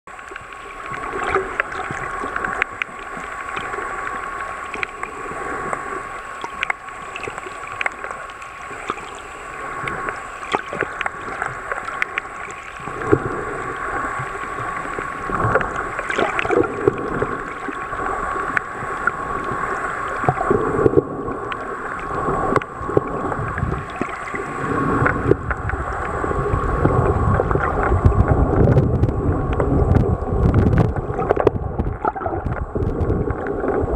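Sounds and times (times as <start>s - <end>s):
muffled rush of water: 0.1s - 33.9s
underwater clicks and crackles: 0.1s - 33.9s
low rumble: 24.6s - 33.9s.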